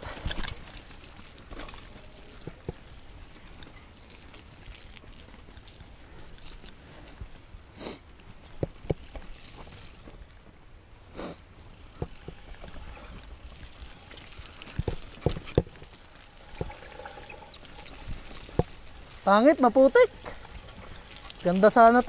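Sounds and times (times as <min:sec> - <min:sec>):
bike rolling on dirt trail: 0:00.0 - 0:22.0
bike knocks and clatters: 0:08.4 - 0:09.8, 0:11.8 - 0:13.4, 0:14.7 - 0:16.9, 0:18.1 - 0:19.0.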